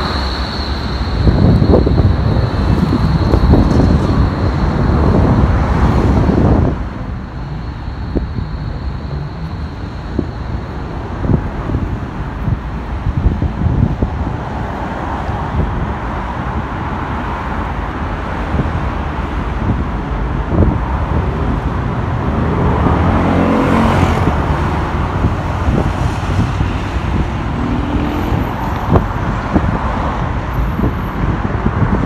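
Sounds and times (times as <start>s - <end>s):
road traffic noise: 0.0s - 32.0s
vehicle engine passing close: 21.2s - 29.7s.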